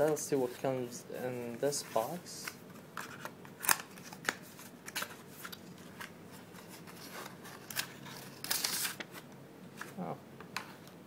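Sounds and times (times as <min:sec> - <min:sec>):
cardboard and paper rustling: 0:01.7 - 0:09.2.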